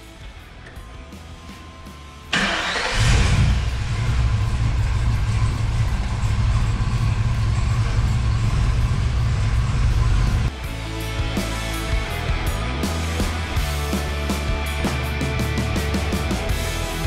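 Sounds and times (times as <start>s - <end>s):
engine starting and rumbling: 0.6s - 10.5s.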